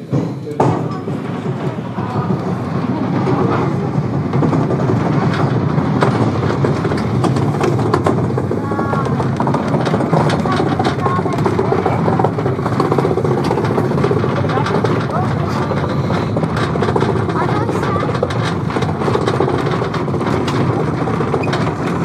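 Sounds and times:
rail vehicle rumbling on track: 0:00.0 - 0:22.0.

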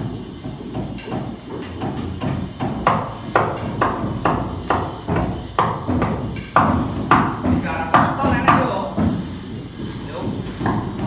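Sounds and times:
hammering inside wooden hull: 0:02.2 - 0:09.2.

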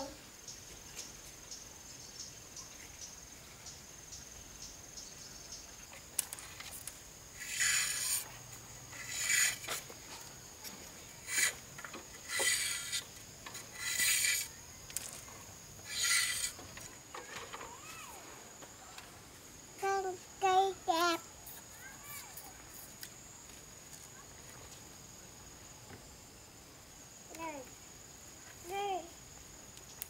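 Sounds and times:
high insect trill: 0:00.0 - 0:30.0
rough scraping strokes: 0:06.2 - 0:17.7.

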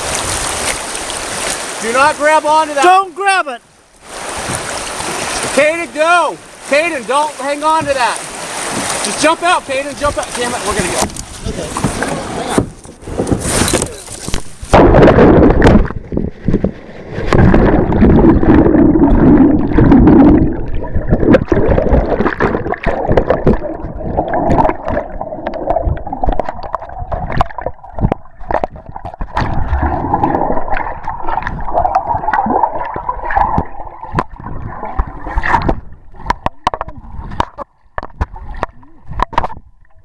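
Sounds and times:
muffled underwater river rushing: 0:00.0 - 0:40.0
knocks and bumps underwater: 0:07.6 - 0:09.2, 0:10.0 - 0:40.0.

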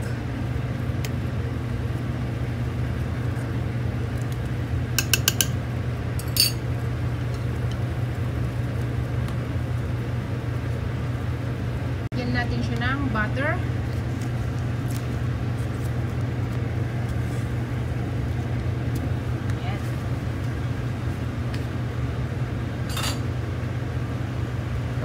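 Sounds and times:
low background hum: 0:00.0 - 0:25.0
spoon clinking on steel pot: 0:05.0 - 0:05.5, 0:06.2 - 0:06.6.

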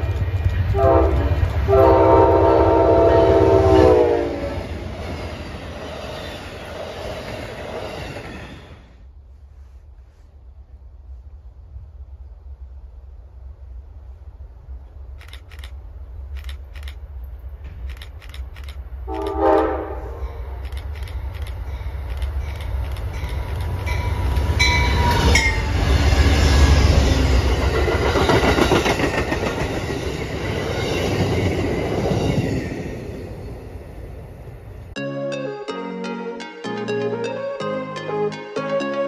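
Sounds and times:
wheels clattering on rails: 0:00.0 - 0:01.7, 0:20.6 - 0:33.6
train horn blast: 0:00.7 - 0:04.7, 0:19.1 - 0:20.6.

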